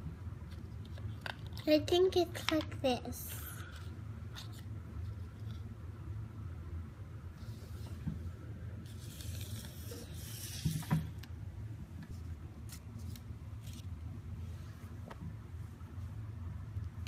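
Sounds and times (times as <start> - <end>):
paper rustling: 8.9 - 11.1, 12.6 - 14.0.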